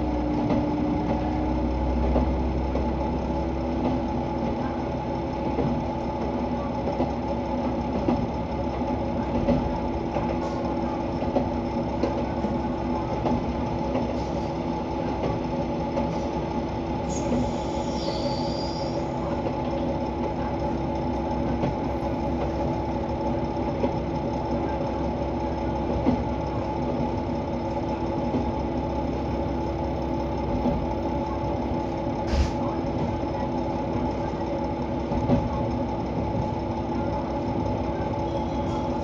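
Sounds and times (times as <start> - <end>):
diesel railcar engine idling: 0.0 - 39.0.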